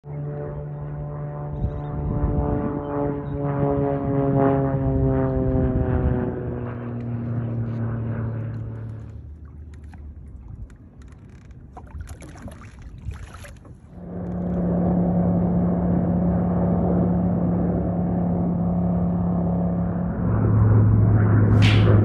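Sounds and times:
steady motor hum: 0.1s - 22.0s
clicking and handling noise: 8.5s - 11.7s.

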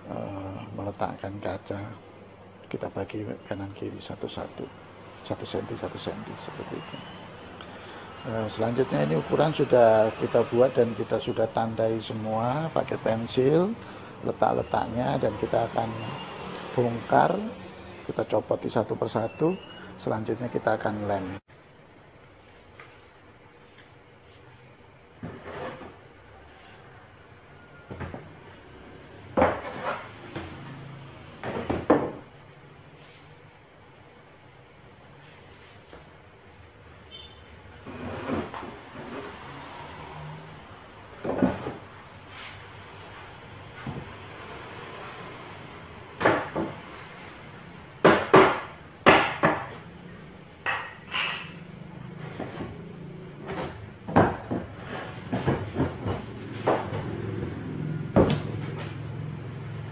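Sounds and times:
wooden boards knocking and clattering: 29.4s - 30.0s, 31.4s - 32.3s, 46.2s - 46.9s, 48.0s - 49.8s, 53.4s - 57.5s
wooden knocks and clatters: 53.4s - 59.0s.

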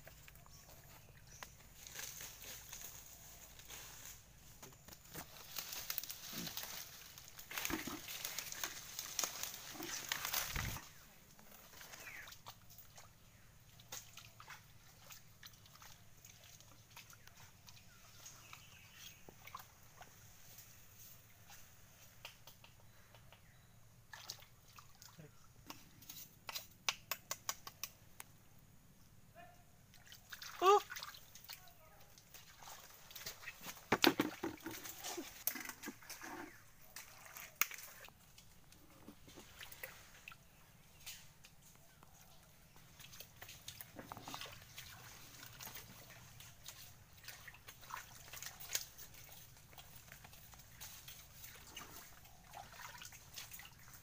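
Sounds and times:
wet mud squelches: 34.6s - 54.0s.

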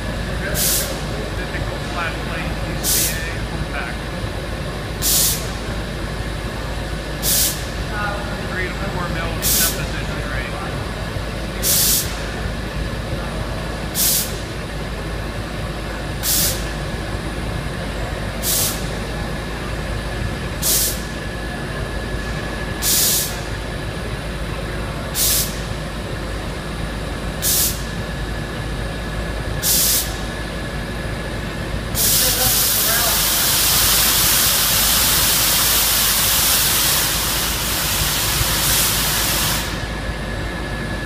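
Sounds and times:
steady fan noise: 0.0s - 41.0s
compressed air blasts hissing: 0.5s - 1.1s, 2.8s - 3.3s, 5.0s - 5.6s, 7.2s - 7.8s, 11.6s - 12.2s, 14.0s - 14.4s, 16.2s - 16.7s, 18.4s - 18.9s, 20.6s - 21.1s, 22.8s - 23.4s, 25.2s - 25.7s, 27.4s - 28.0s, 29.6s - 30.3s, 32.0s - 39.9s.

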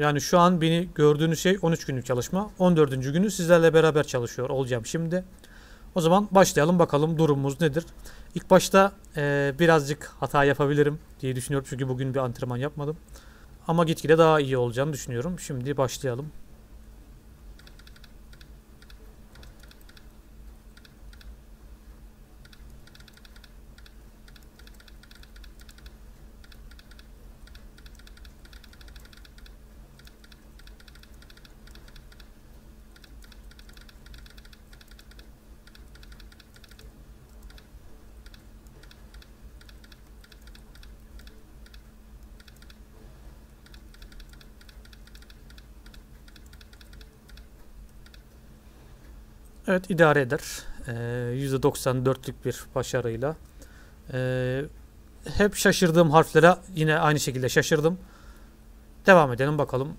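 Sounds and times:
laptop keyboard typing: 17.6s - 20.1s, 20.7s - 21.3s, 22.4s - 42.8s, 43.6s - 48.2s.

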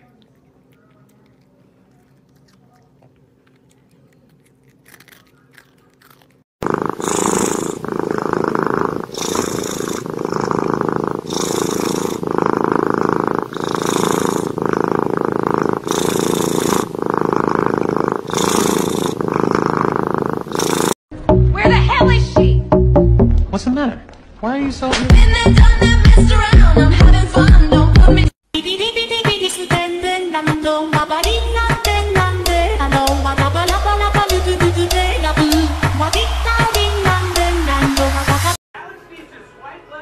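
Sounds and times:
cat chewing crumbs: 0.0s - 6.4s
cat purring loudly: 4.8s - 21.0s, 31.6s - 38.6s.

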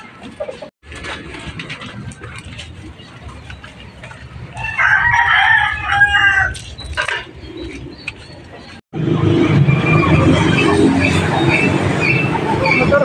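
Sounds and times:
rooster crowing: 4.6s - 6.6s.

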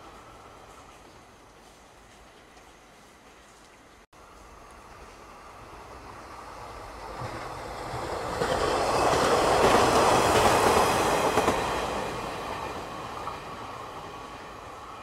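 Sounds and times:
train rumbling past: 4.2s - 15.0s.

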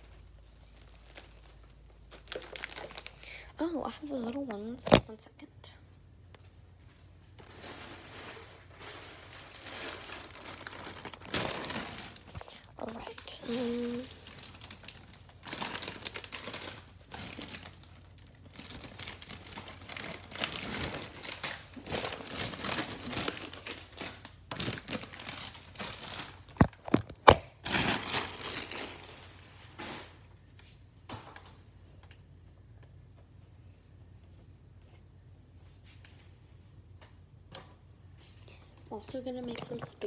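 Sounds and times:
chip bag crinkling: 0.0s - 3.4s, 7.4s - 30.2s.

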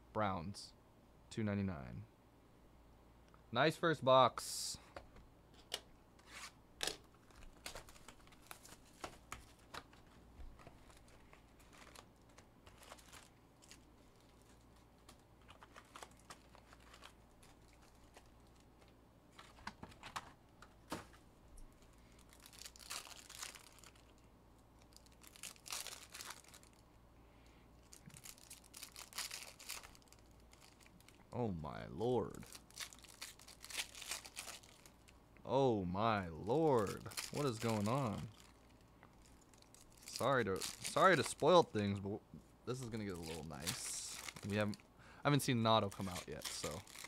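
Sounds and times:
foil packs crinkling: 6.9s - 21.1s, 21.8s - 26.8s, 27.8s - 31.3s, 32.2s - 35.2s, 36.5s - 41.8s, 42.7s - 47.0s.

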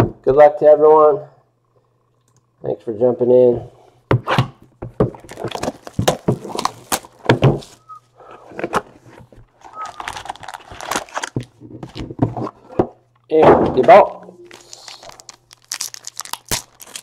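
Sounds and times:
foil packs crinkling: 5.1s - 8.4s, 9.5s - 12.1s, 14.4s - 17.0s
shrink wrap tearing: 5.2s - 7.8s, 9.6s - 11.4s, 14.4s - 17.0s.

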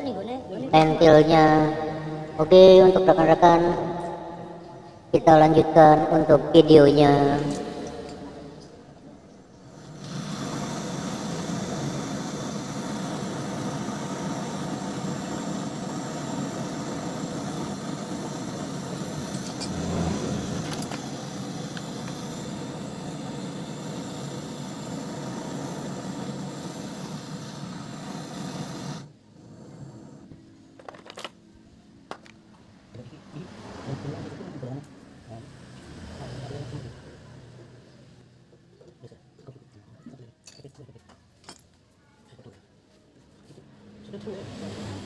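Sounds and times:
gas torch hissing flame: 7.1s - 30.4s.

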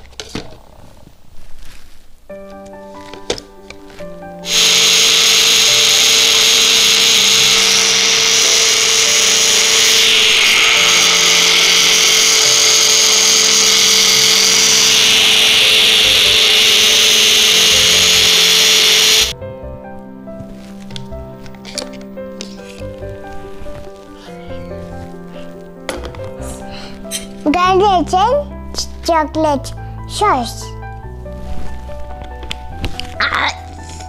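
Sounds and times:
background music: 2.2s - 7.4s, 9.4s - 34.0s
blender motor whining: 4.4s - 19.4s.

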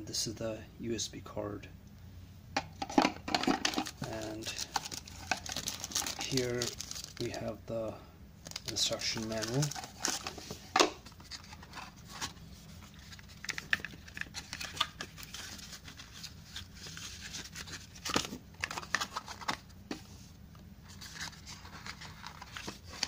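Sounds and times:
cardboard box packaging rustling: 3.3s - 7.3s, 8.4s - 19.8s, 20.8s - 23.0s.

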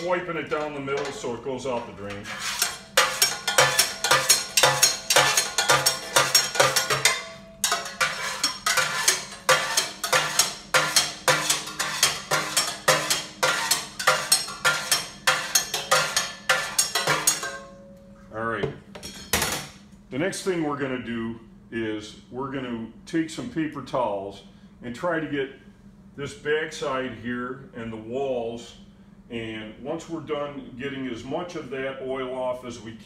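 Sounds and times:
low hum: 0.0s - 20.1s
metal spoon scraping steel pot: 2.0s - 17.6s.

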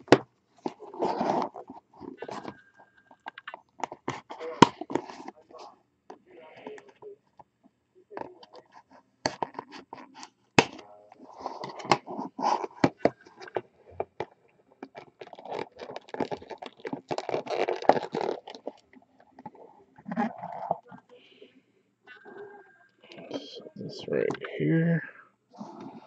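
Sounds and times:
cardboard box scratching and crinkling: 0.7s - 1.6s, 15.2s - 18.8s.

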